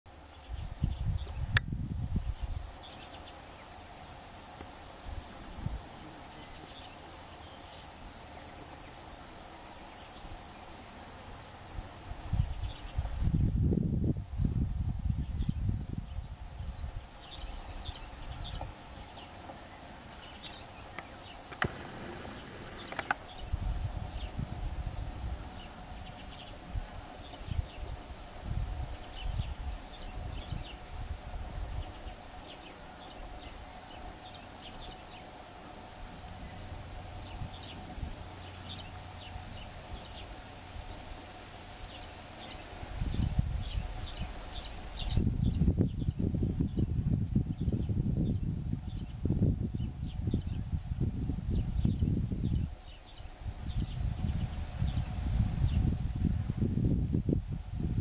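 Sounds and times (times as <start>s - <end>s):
wind rumbling on microphone: 0.1s - 3.3s, 11.6s - 35.2s, 35.8s - 58.0s
small birds chirping: 0.1s - 4.0s, 5.2s - 11.3s, 15.2s - 28.1s, 31.7s - 41.2s, 41.8s - 50.8s, 51.5s - 56.0s
faint steady hum: 0.1s - 58.0s.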